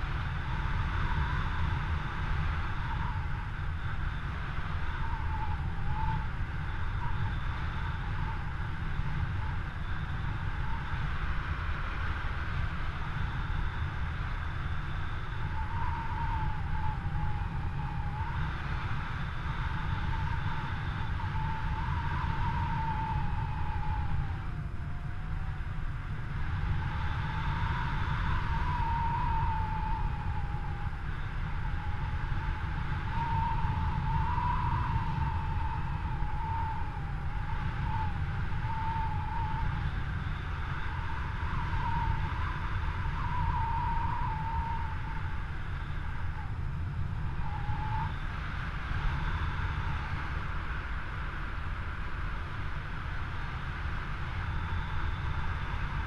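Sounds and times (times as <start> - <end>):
wind buffeting microphone: 0.0 - 56.0
thin wavering whistle: 0.4 - 11.1, 14.8 - 25.7, 26.4 - 46.6, 47.2 - 48.4.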